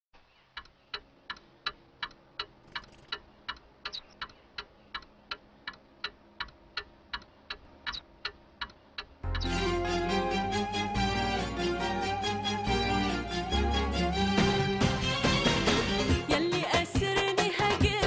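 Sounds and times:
clock ticking: 0:00.5 - 0:09.6.

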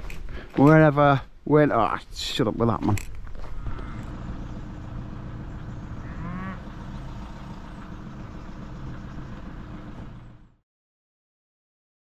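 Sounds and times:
calf mooing: 0:03.4 - 0:04.3, 0:06.0 - 0:07.6.

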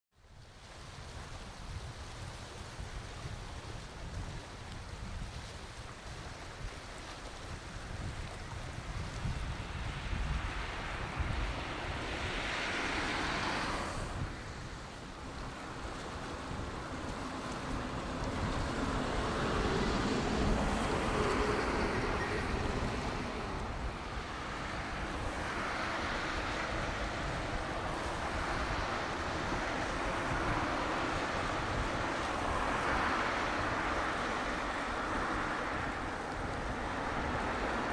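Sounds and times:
wind buffeting microphone: 0:00.4 - 0:37.9
vehicle passing by: 0:10.4 - 0:14.5, 0:17.1 - 0:37.9.

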